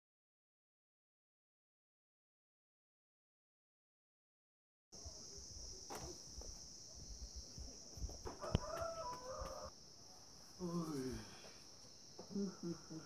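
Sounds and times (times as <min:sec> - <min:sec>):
steady high-pitched hiss: 0:05.0 - 0:13.0
footsteps on stone steps: 0:07.2 - 0:09.7.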